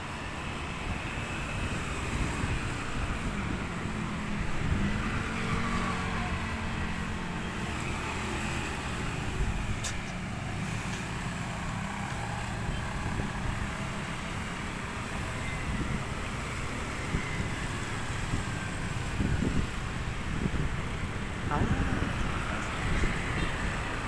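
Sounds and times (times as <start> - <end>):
motorcycles and cars passing: 0.0 - 24.0.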